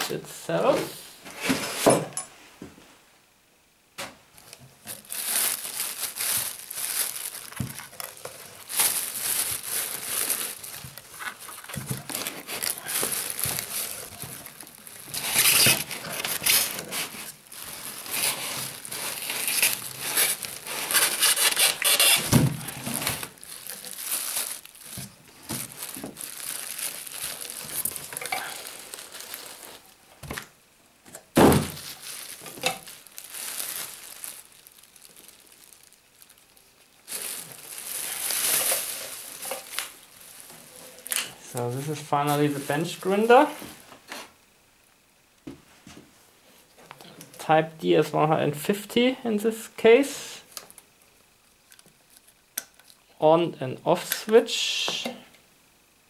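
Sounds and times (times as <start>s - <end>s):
plastic wrapping crinkling: 4.4s - 44.4s
thump: 31.4s - 31.8s.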